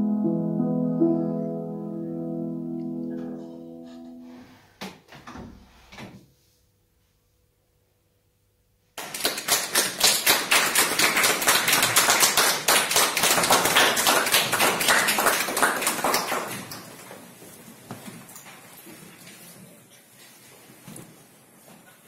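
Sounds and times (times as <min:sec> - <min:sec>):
audience applauding: 0:09.0 - 0:17.1.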